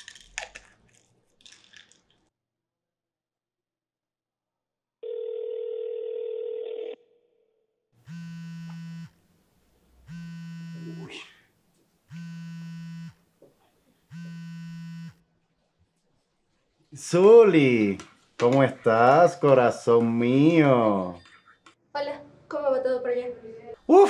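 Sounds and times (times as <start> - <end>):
telephone ringing tone: 5.0 - 7.1
mobile phone buzzing: 8.0 - 9.2, 10.0 - 11.1, 12.1 - 13.2, 14.1 - 15.2.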